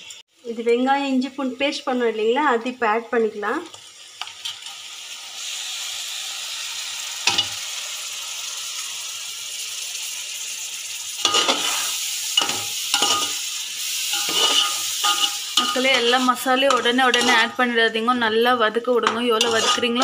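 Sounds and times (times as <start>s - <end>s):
paste sizzling in hot oil: 3.2s - 20.0s
ladle scraping pot: 11.2s - 13.4s, 14.1s - 17.6s, 19.0s - 20.0s.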